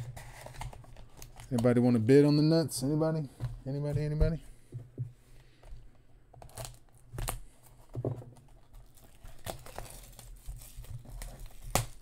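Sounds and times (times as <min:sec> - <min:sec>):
plastic shrink-wrap tearing and crinkling: 0:06.4 - 0:07.5, 0:08.6 - 0:12.0.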